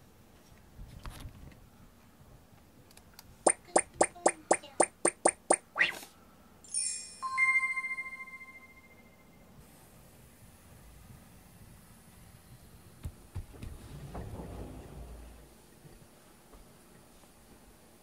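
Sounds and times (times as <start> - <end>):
sharp ticks: 3.5 - 5.7
bell-like chime: 6.7 - 9.6.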